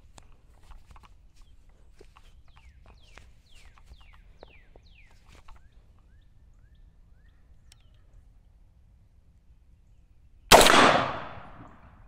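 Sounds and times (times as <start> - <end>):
faint clicks: 7.6 - 8.1.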